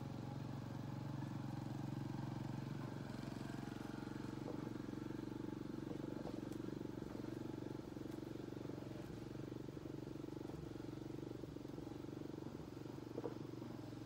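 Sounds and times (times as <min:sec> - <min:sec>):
small engine running: 0:00.0 - 0:14.0.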